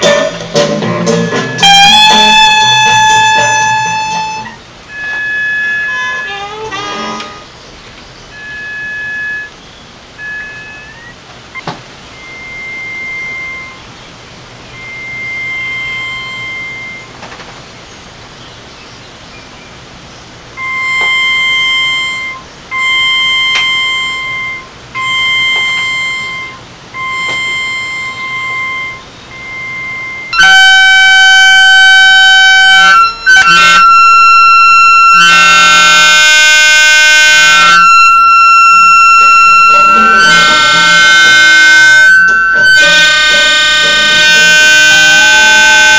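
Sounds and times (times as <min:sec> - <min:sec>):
loud sustained electronic tone: 0:00.0 - 0:07.5, 0:08.2 - 0:17.2, 0:20.5 - 0:45.9
short electronic tones: 0:01.1 - 0:07.5, 0:08.3 - 0:14.0, 0:14.6 - 0:17.2, 0:20.6 - 0:45.9
speaker buzzing against wood: 0:37.6 - 0:45.9.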